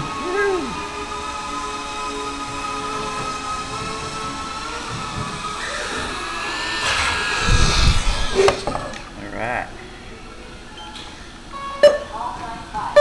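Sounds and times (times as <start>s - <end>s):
quadcopter motors whining: 0.0s - 9.2s.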